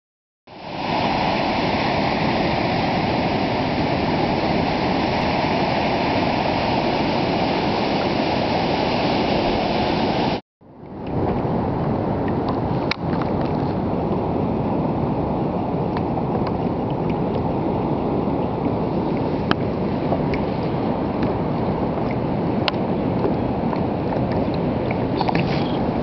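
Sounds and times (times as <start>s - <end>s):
surf breaking on rocks: 0.5s - 10.4s.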